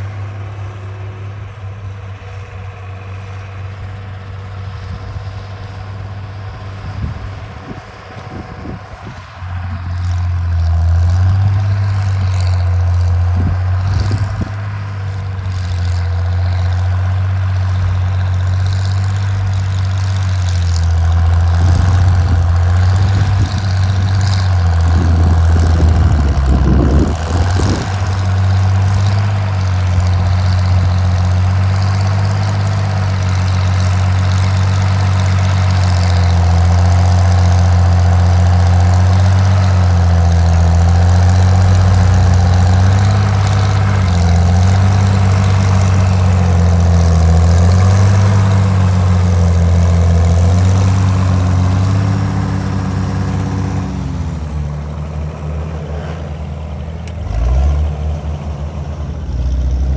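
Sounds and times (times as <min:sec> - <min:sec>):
tractor engine running under load: 0:00.0 - 0:59.9.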